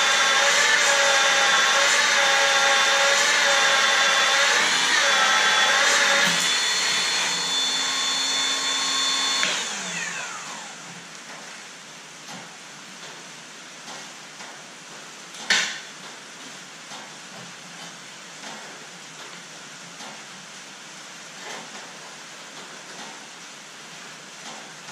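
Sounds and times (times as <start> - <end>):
motor winding down: 0.0 - 10.9
magnetic drill drilling steel: 0.0 - 11.0.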